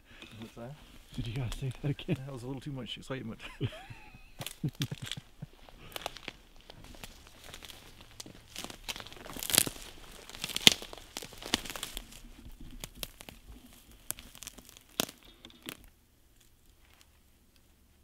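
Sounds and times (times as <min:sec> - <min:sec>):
footsteps crunching through dry brush: 0:00.0 - 0:18.0
twigs snapping: 0:04.4 - 0:17.7.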